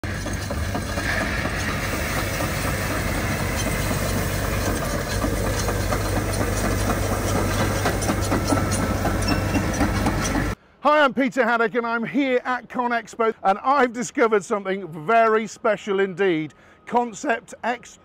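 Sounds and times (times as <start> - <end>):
dozer engine running: 0.0 - 10.6.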